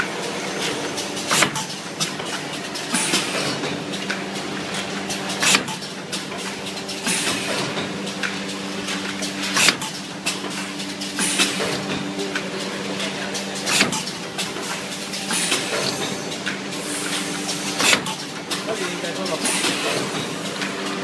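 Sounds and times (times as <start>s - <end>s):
machine clunk: 9.5s - 16.6s.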